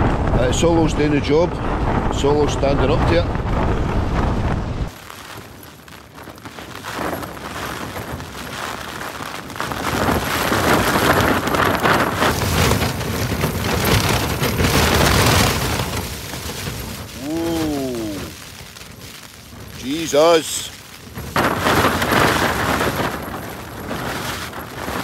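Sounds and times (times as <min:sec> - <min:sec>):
wind gust shaking tent fabric: 0:00.0 - 0:25.0
man exclaiming: 0:17.2 - 0:18.3.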